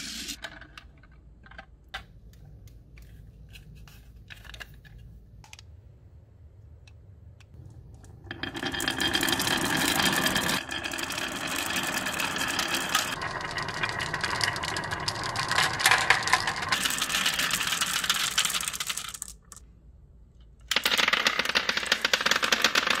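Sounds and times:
marbles clattering out: 8.1 - 19.6, 20.7 - 23.0
marbles rolling on wooden track: 8.1 - 19.6, 20.7 - 23.0
marbles rattling into plastic truck: 8.3 - 19.6, 20.7 - 23.0.

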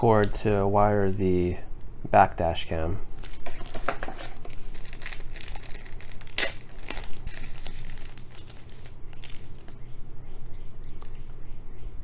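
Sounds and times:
plastic wrap crinkling: 3.1 - 11.4.

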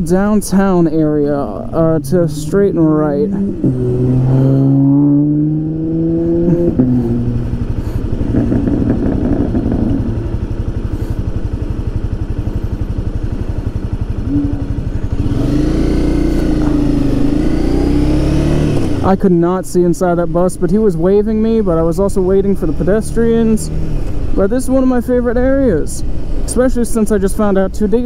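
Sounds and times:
motorcycle engine revving and idling: 0.0 - 28.0.

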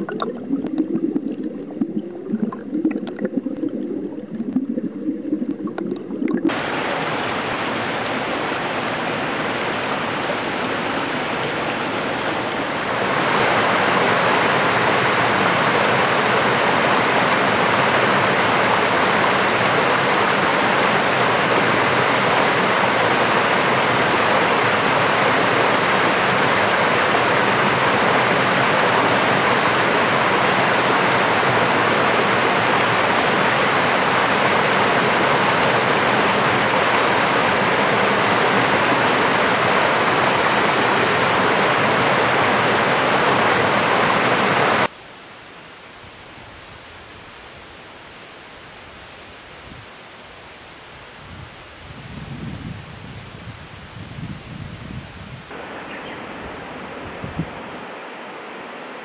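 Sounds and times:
stream rushing over rocks: 6.4 - 45.0, 55.5 - 59.0.

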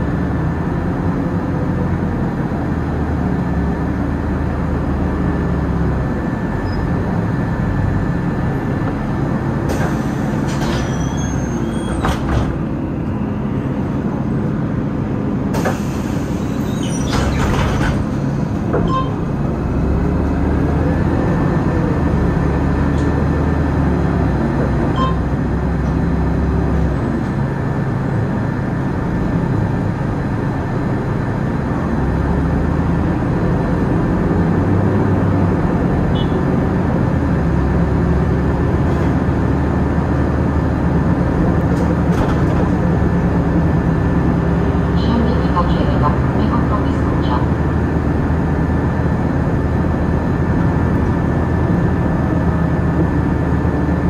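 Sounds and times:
bus drivetrain whine: 0.0 - 54.0
pneumatic door air hiss: 15.6 - 18.0.

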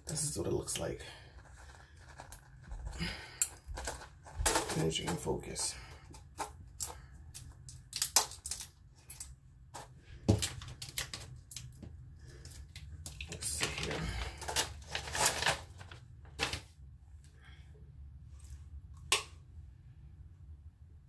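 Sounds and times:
sharp clicks and crinkles: 1.3 - 16.7.

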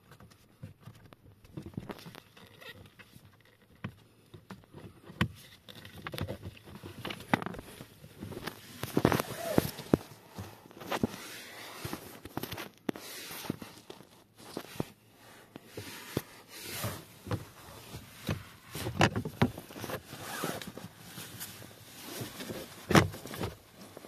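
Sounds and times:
rustling of gloved hands: 0.3 - 24.0
clicks and knocks of plastic parts: 18.2 - 20.0.

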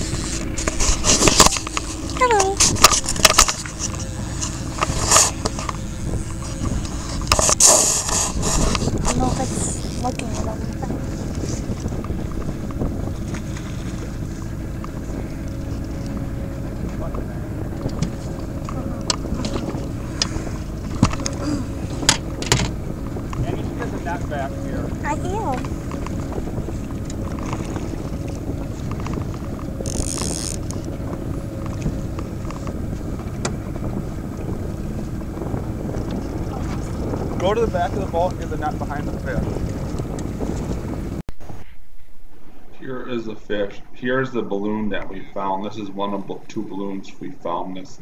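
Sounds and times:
high-pitched buzz: 0.0 - 11.3
jacket brushing microphone: 0.0 - 33.1
boat motor running: 0.0 - 41.2
wind noise on microphone: 0.0 - 46.6.

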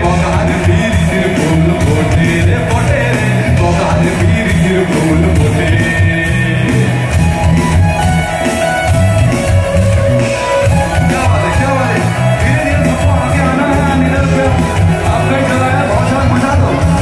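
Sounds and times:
person singing lead vocal: 0.0 - 7.2, 10.8 - 17.0
live rock band playing: 0.0 - 17.0.

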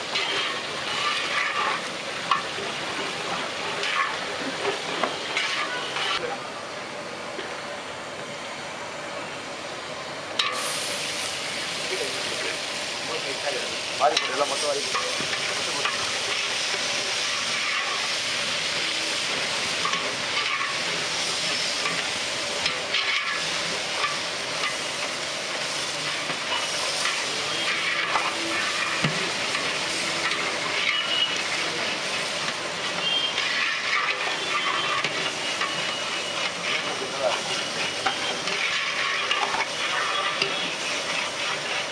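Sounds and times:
water boiling: 0.0 - 41.9
metal ladle scraping pot: 0.1 - 2.4, 5.3 - 6.2, 26.5 - 31.6, 32.9 - 41.9.

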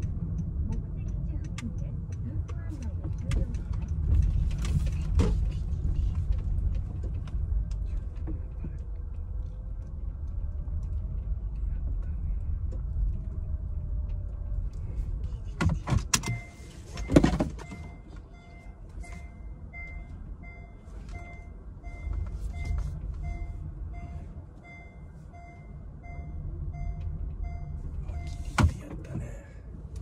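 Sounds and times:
engine and tyre rumble: 0.0 - 30.0
clunks: 14.0 - 30.0
car reverse warning beeps: 16.1 - 28.8.

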